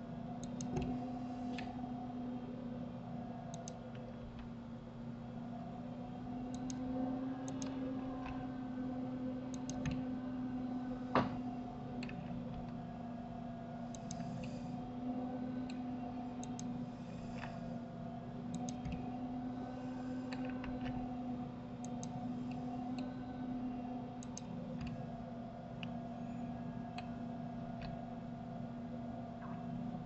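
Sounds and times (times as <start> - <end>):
steady low hum: 0.0 - 30.0
mouse and keyboard clicking: 0.4 - 1.7, 3.5 - 3.8, 6.5 - 6.8, 7.4 - 7.8, 9.5 - 10.0, 13.9 - 14.6, 16.4 - 16.7, 24.2 - 25.0.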